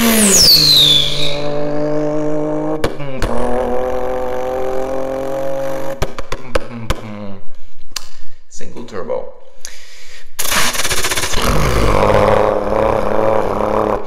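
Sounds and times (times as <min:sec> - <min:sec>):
man imitating engine through tube: 0:00.0 - 0:05.7, 0:06.3 - 0:07.6, 0:10.4 - 0:14.0.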